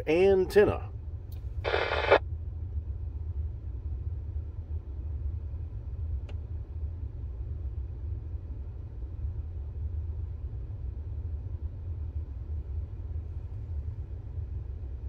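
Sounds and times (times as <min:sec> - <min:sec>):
radio static burst: 0:01.7 - 0:02.2
faint click: 0:06.2 - 0:06.4.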